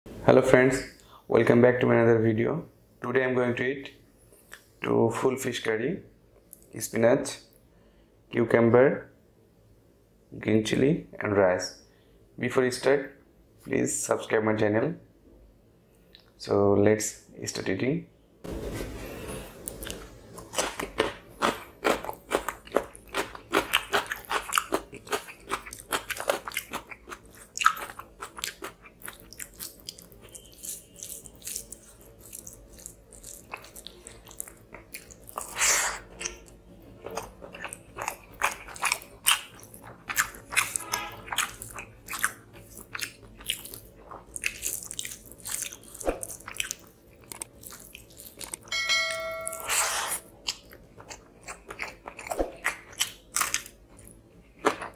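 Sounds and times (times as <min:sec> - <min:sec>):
crunching cucumber: 0:19.7 - 0:48.7, 0:50.4 - 0:54.9
short pitched chime: 0:48.7 - 0:50.2.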